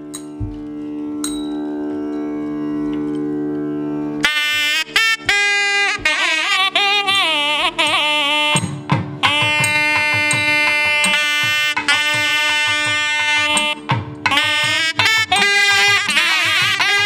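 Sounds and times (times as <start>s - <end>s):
double-reed horn melody: 0.6s - 17.0s.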